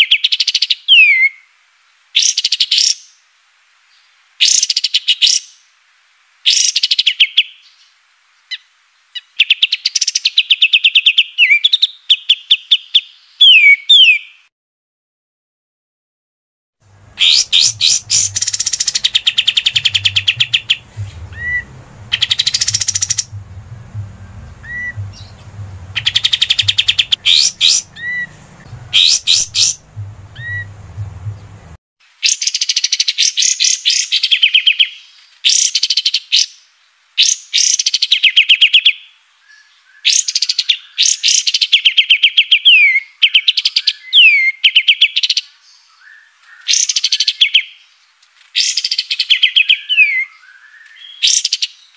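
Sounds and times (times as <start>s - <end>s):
low background hum: 16.8s - 31.8s
songbird trilling: 17.0s - 31.8s
bird whistled notes: 17.1s - 31.7s.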